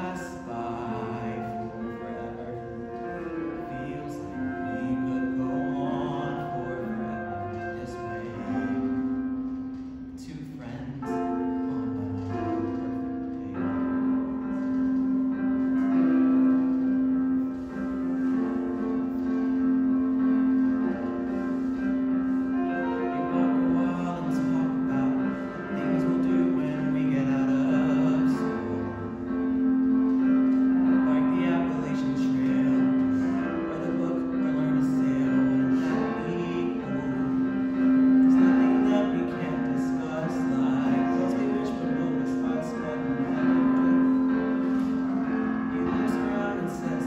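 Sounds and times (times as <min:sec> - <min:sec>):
boy singing a ballad: 0:00.0 - 0:09.0, 0:10.2 - 0:14.7, 0:22.7 - 0:29.2, 0:30.9 - 0:47.0
instrumental accompaniment: 0:00.0 - 0:47.0.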